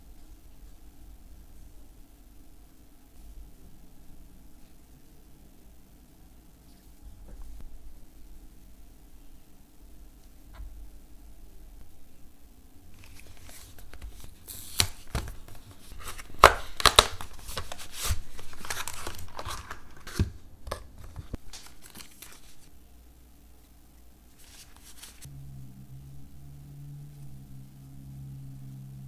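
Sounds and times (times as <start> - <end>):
plastic tray rustling and crinkling: 12.9 - 22.7, 24.4 - 25.3.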